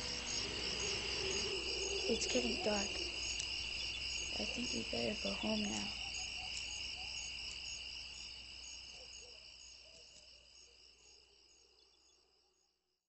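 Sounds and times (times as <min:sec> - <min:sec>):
crickets chirping: 0:00.0 - 0:12.8.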